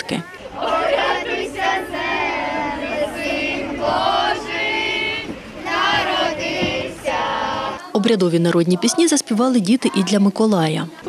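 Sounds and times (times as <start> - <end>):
children singing a carol: 0.3 - 10.3.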